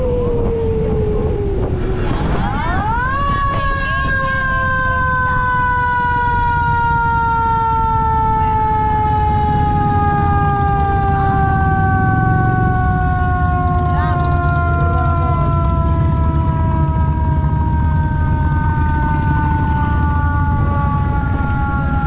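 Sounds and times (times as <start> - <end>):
low steady rumble: 0.0 - 22.0
siren winding down: 0.0 - 22.0.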